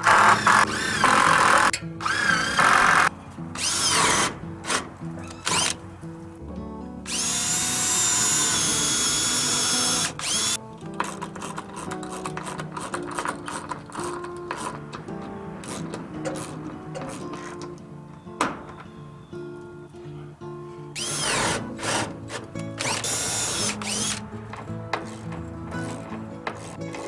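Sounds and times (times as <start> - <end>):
drill rapid clicking: 0.0 - 4.8, 7.1 - 14.8, 21.0 - 24.2
cordless drill whining: 0.0 - 5.8, 7.1 - 14.8, 20.9 - 27.0
background music: 0.0 - 27.0.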